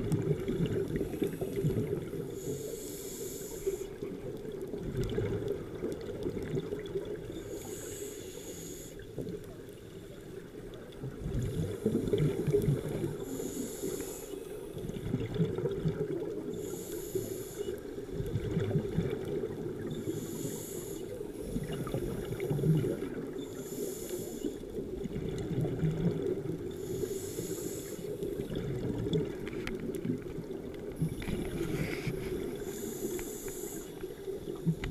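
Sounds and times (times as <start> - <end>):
regulator inhalation hiss: 2.4 - 4.0, 7.5 - 9.0, 13.2 - 14.8, 16.6 - 17.8, 20.0 - 22.7, 23.4 - 24.7, 26.8 - 28.2, 31.3 - 34.2
bubbling of exhaled air: 11.0 - 14.2, 14.8 - 16.7.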